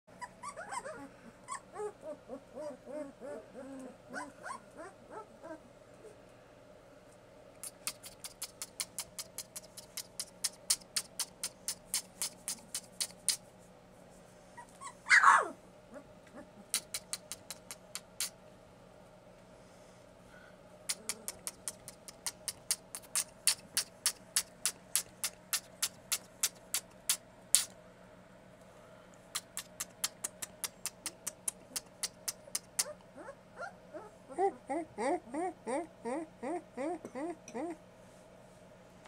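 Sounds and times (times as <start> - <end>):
puppies whimpering and squeaking: 0.2 - 5.6, 14.6 - 16.5
puppy yelp falling in pitch: 14.8 - 15.6.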